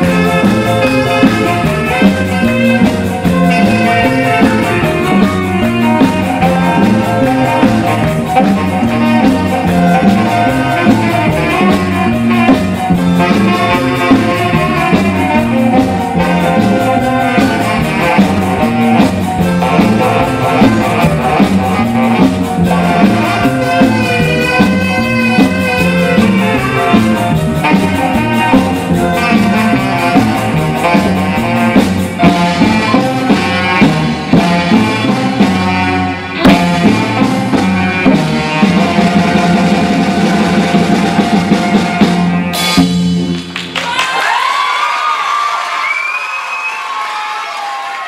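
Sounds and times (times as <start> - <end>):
live ska band playing: 0.0 - 46.2
audience cheering and applauding: 43.2 - 48.0
whistles from audience: 45.7 - 47.4.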